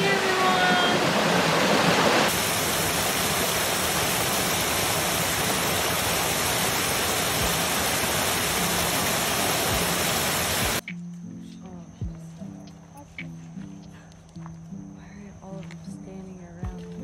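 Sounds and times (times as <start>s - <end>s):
waterfall rushing: 0.0s - 10.8s.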